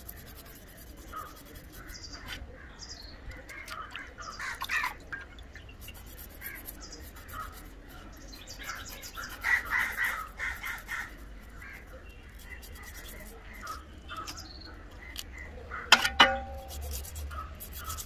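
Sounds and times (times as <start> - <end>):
knife scraping fish scales: 0.0 - 2.4, 5.8 - 14.4, 15.9 - 18.0
crows cawing: 9.4 - 11.9.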